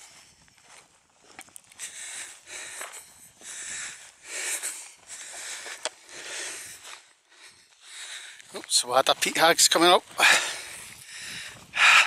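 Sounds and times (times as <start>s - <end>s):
footsteps through grass: 0.0s - 11.0s
person breathing hard: 1.7s - 8.5s, 10.1s - 12.0s.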